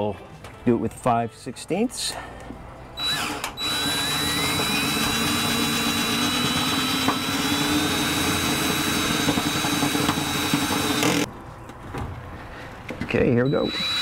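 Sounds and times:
power drill whining: 0:03.0 - 0:11.3, 0:13.4 - 0:14.0.

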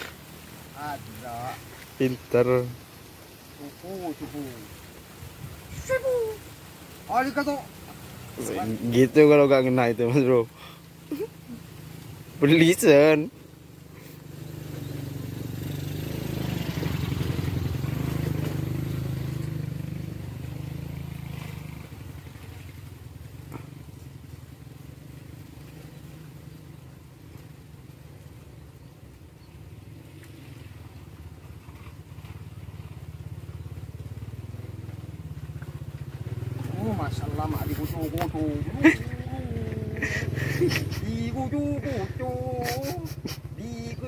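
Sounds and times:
small engine humming: 0:24.8 - 0:44.0.

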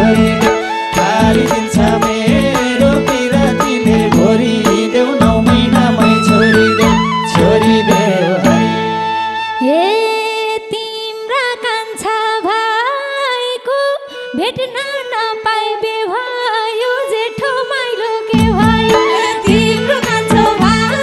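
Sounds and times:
folk band playing: 0:00.0 - 0:09.7, 0:18.1 - 0:21.0
ornamented folk melody: 0:00.0 - 0:21.0.

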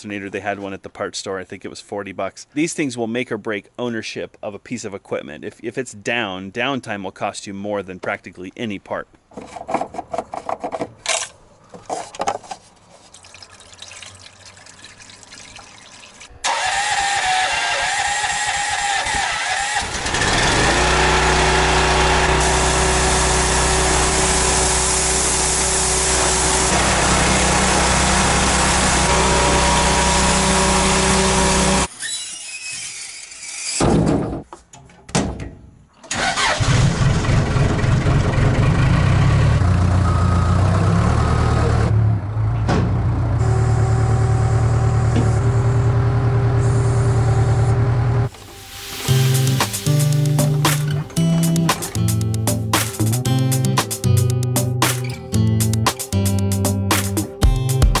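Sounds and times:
diesel engine running: 0:16.5 - 0:31.9, 0:36.2 - 0:53.2
pressure washer engine running: 0:16.5 - 0:31.9, 0:48.3 - 0:53.0
high-pressure spray hissing: 0:22.2 - 0:31.9, 0:48.3 - 0:51.0.

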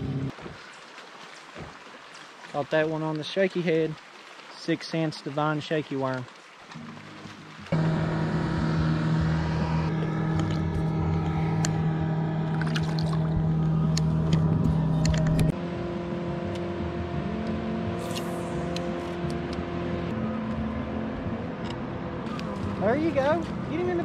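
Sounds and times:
boat motor humming: 0:00.0 - 0:00.6, 0:06.6 - 0:24.0.

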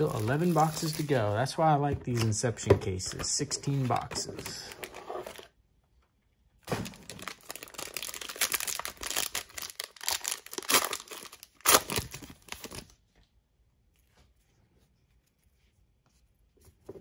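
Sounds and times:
foil wrapper crinkling and tearing: 0:00.0 - 0:01.3, 0:06.7 - 0:13.0.

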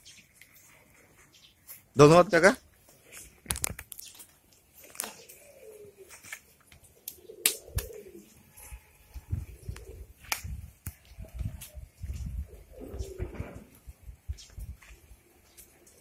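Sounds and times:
pigeons cooing: 0:04.6 - 0:10.3, 0:11.0 - 0:16.0.

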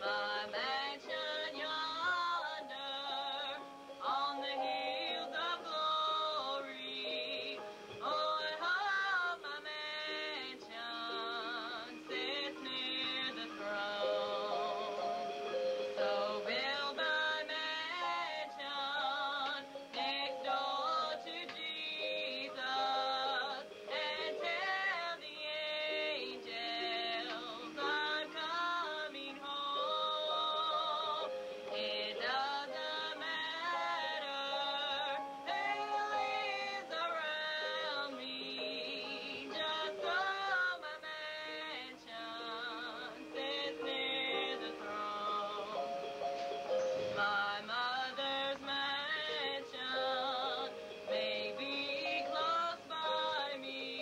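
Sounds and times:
electric keyboard: 0:00.0 - 0:54.0
woman singing with vibrato: 0:00.0 - 0:54.0.

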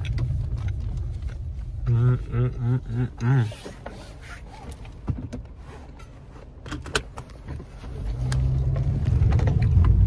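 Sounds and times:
low car rumble: 0:00.0 - 0:10.0
seatbelt clicks and rattles: 0:04.7 - 0:07.6.

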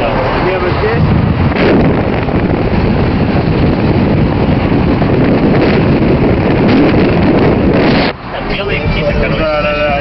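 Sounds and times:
car wind and road noise: 0:00.0 - 0:10.0
wind buffeting microphone: 0:00.0 - 0:10.0.

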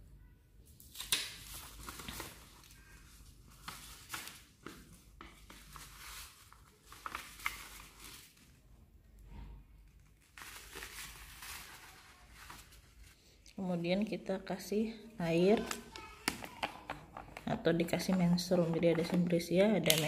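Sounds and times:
paper scraps rustling: 0:10.0 - 0:13.2.

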